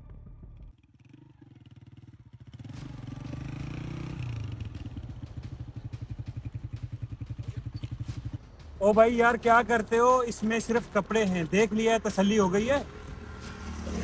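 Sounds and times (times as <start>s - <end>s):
motorcycle engine pulling away: 0.0s - 8.7s, 12.8s - 14.0s.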